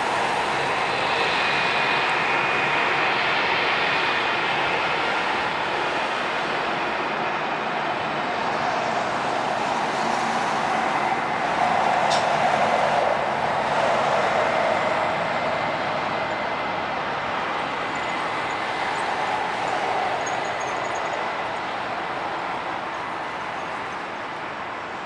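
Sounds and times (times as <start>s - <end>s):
jet engines whining: 0.0s - 24.7s.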